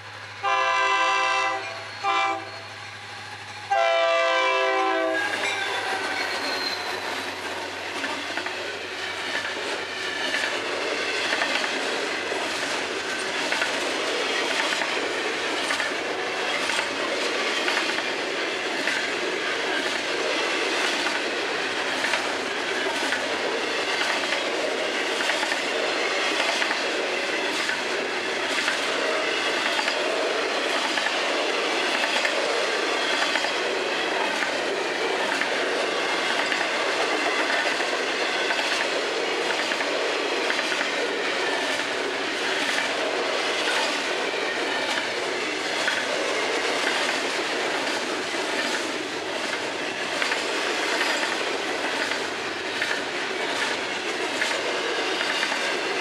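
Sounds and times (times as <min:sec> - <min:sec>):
steel wheels rumbling on rail: 0:00.0 - 0:56.0
wheels clacking over rail joints: 0:04.6 - 0:56.0.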